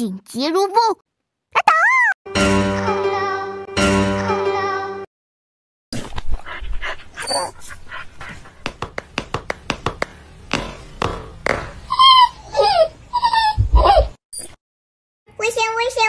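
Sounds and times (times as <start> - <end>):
dog huffing and woofing: 6.0 - 9.2
dog whining: 7.2 - 7.6, 11.8 - 14.2.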